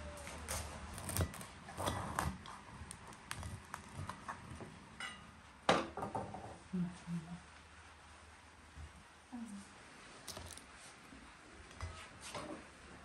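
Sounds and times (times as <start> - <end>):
knife crunching through bun: 0.9 - 4.3, 10.3 - 10.7.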